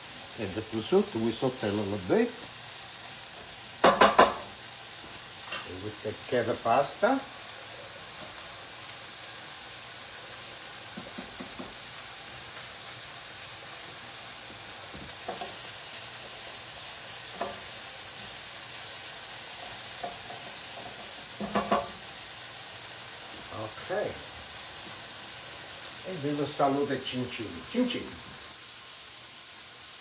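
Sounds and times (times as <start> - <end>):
meat sizzling in a skillet: 0.0 - 30.0
wooden spoon knocking a pot: 3.8 - 4.5, 21.4 - 22.0.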